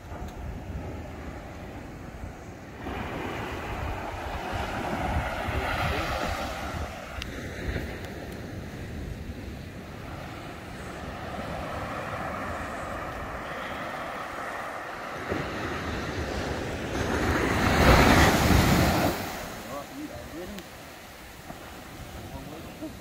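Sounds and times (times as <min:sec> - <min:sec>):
wind buffeting microphone: 0:00.0 - 0:23.0
surf breaking: 0:10.1 - 0:23.0.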